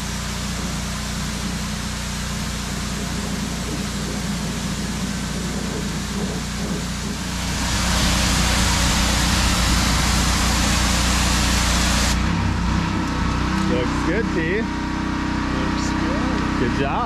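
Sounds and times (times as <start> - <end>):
water spray hissing: 0.0 - 12.3
pressure washer engine hum: 0.0 - 17.0.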